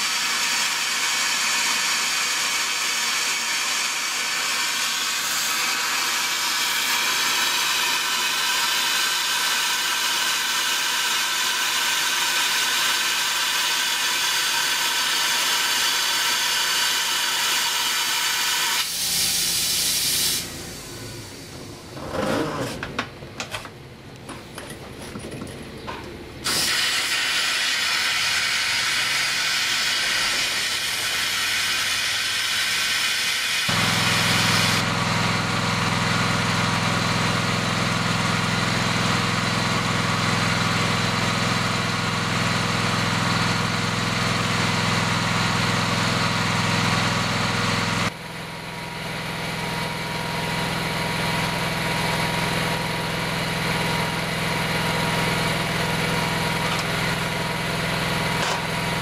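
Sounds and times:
hiss of air rushing through hose: 0:13.1 - 0:21.2, 0:26.4 - 0:34.8.

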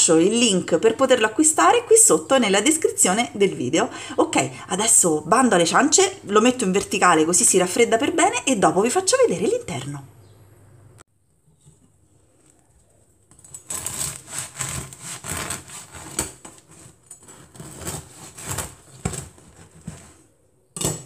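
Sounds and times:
bread knife sawing crusty loaf: 0:13.3 - 0:20.2.

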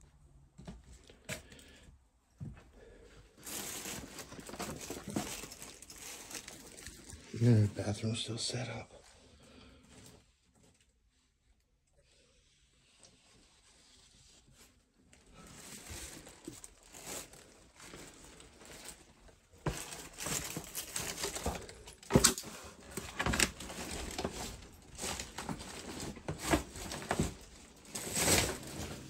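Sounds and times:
rustling and crinkling: 0:00.2 - 0:07.8, 0:09.0 - 0:11.8, 0:12.4 - 0:29.0.

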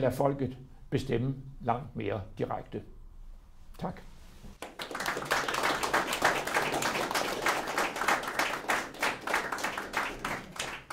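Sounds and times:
audience applauding: 0:04.6 - 0:10.9.

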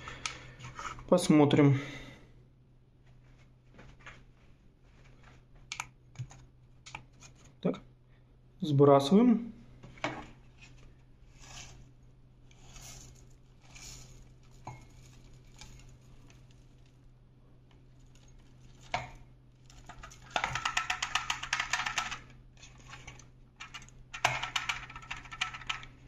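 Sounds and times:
oats rattling out of container: 0:12.6 - 0:17.0, 0:17.9 - 0:26.0.

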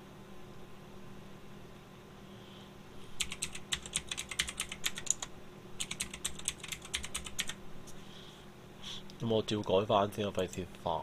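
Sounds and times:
typing on keyboard: 0:03.2 - 0:07.6.

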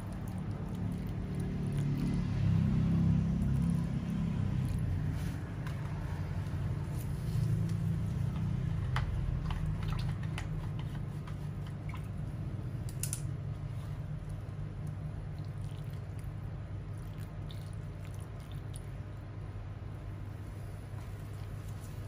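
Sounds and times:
liquid sloshing: 0:00.0 - 0:07.2, 0:09.2 - 0:12.6, 0:14.0 - 0:19.2.

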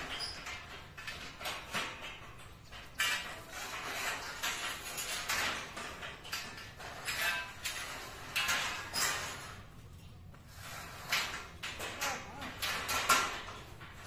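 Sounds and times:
metal pipes clanking and scraping: 0:00.0 - 0:14.0.

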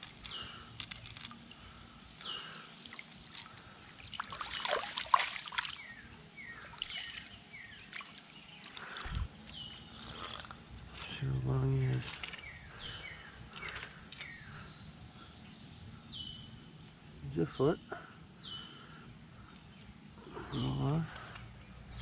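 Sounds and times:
stream water splashing: 0:02.9 - 0:06.0, 0:06.7 - 0:09.1
bird chirping: 0:05.6 - 0:22.0.

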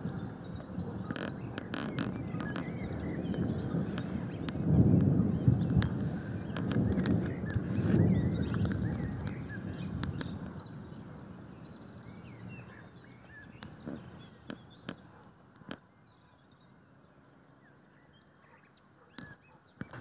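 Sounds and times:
distant thunder rumble: 0:00.0 - 0:12.7
small birds chirping: 0:00.0 - 0:20.0
sharp clicks: 0:01.0 - 0:04.8, 0:05.6 - 0:09.4, 0:10.0 - 0:10.6.

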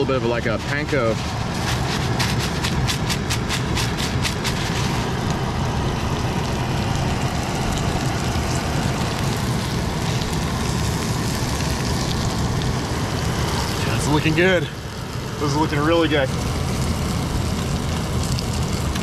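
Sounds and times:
gas stove roaring: 0:00.0 - 0:19.0
food sizzling in oil: 0:00.4 - 0:15.6.

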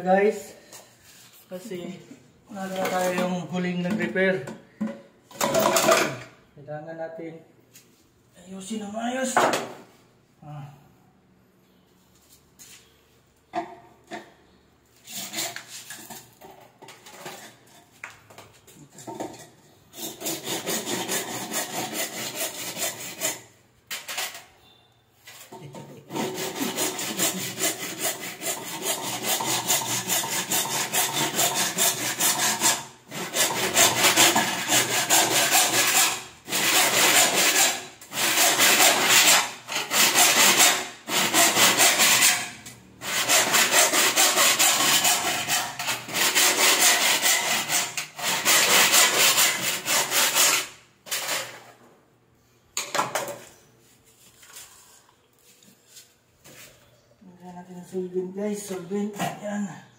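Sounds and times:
hand saw cutting: 0:15.0 - 0:15.8, 0:19.9 - 0:23.5, 0:26.1 - 0:51.6.

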